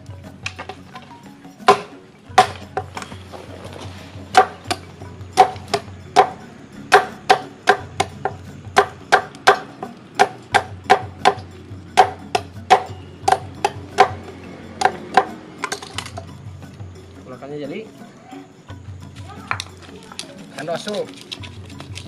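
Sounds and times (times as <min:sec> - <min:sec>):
knife chopping and pounding: 0:01.6 - 0:03.4, 0:04.2 - 0:16.9.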